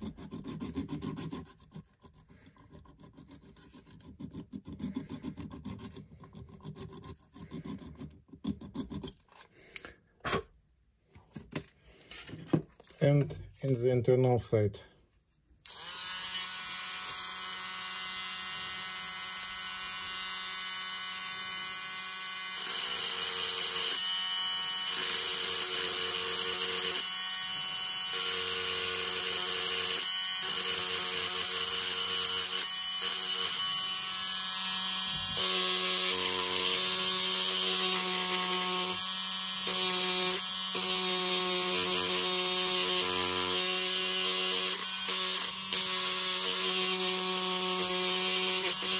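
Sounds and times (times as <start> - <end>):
rotary tool grinding whine: 0.0 - 9.8, 15.6 - 48.9.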